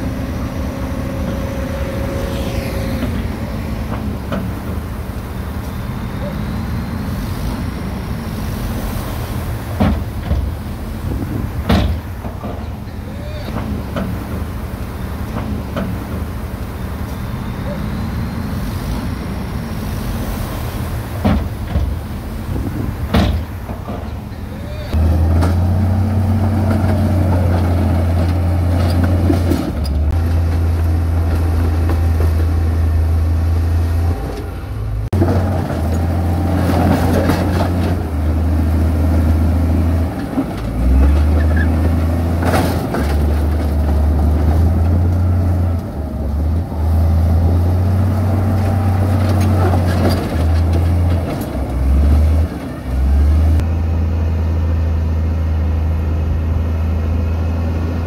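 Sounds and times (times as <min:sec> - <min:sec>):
heavy machinery diesel drone: 0:00.0 - 0:58.0
mechanical noise: 0:00.7 - 0:05.8.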